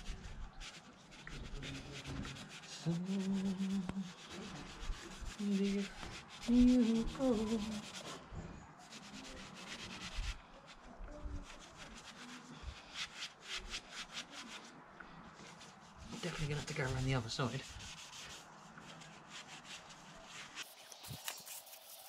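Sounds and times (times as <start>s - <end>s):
scouring pad scrubbing metal pipe: 0.0s - 8.2s, 11.4s - 22.0s.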